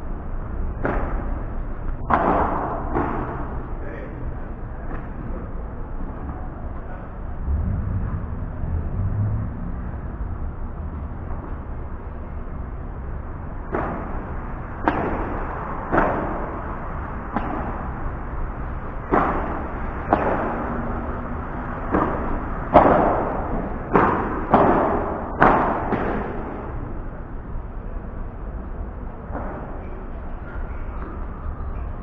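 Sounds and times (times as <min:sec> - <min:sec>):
padel ball struck with rackets: 0:13.7 - 0:16.6, 0:17.3 - 0:17.9, 0:19.1 - 0:20.8, 0:21.9 - 0:26.8.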